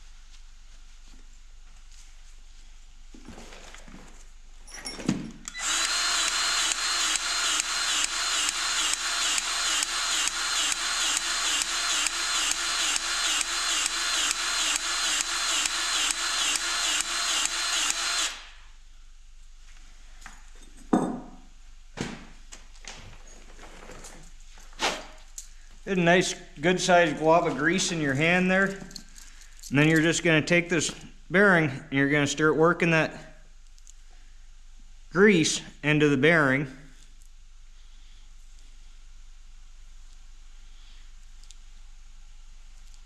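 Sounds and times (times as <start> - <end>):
grease gun pump pulsing: 5.6 - 18.3.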